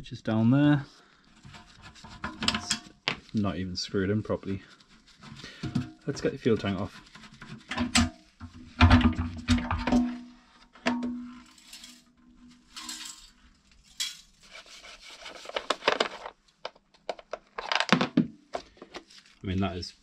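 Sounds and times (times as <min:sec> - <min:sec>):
scraping and rubbing: 0:01.4 - 0:03.4, 0:04.1 - 0:08.8, 0:11.3 - 0:16.3.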